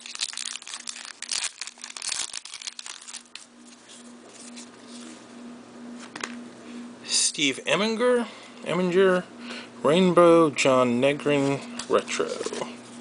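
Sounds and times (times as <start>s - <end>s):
trading cards rustling: 0.0s - 5.2s, 11.4s - 12.8s
faint steady hum: 0.0s - 13.0s.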